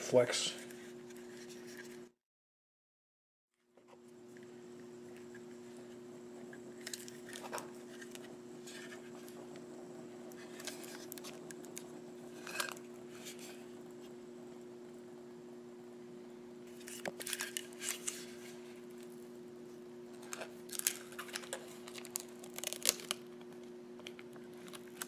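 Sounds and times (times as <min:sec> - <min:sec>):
steady low hum: 0:03.6 - 0:25.0
plastic bag crinkling: 0:20.1 - 0:25.0.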